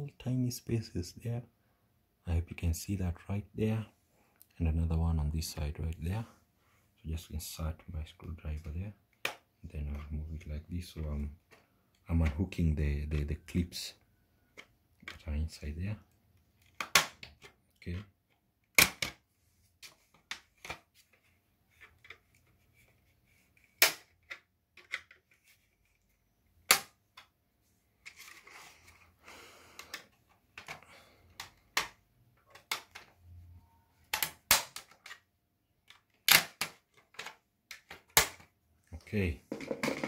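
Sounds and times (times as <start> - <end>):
plastic clips snapping: 34.1 - 35.2, 35.8 - 38.5.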